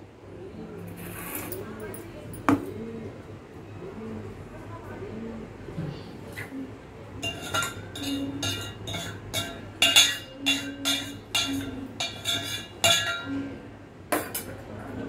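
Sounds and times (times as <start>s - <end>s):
steel utensils clinking: 7.2s - 13.4s.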